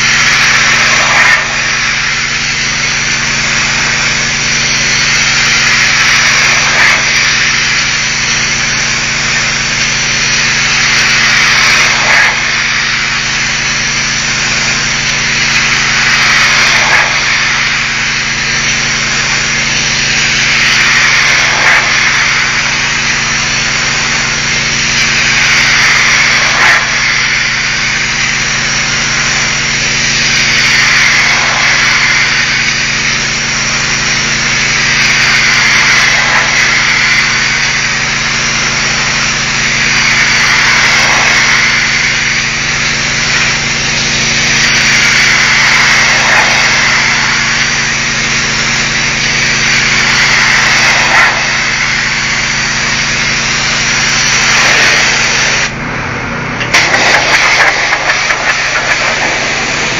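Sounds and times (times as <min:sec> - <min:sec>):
pressure washer jet hissing: 0:00.0 - 0:59.9
pressure washer motor hum: 0:00.0 - 0:59.9.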